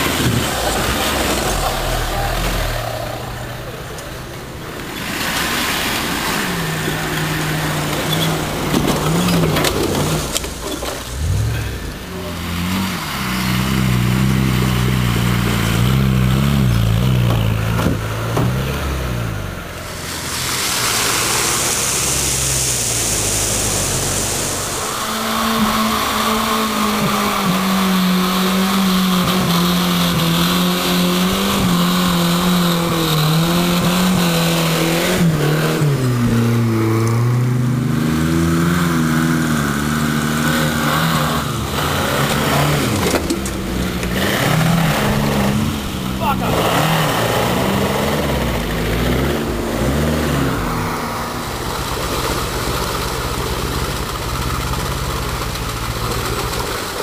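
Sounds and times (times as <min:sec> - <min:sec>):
off-road engines revving: 0:00.0 - 0:57.0
steady hiss: 0:19.7 - 0:27.5.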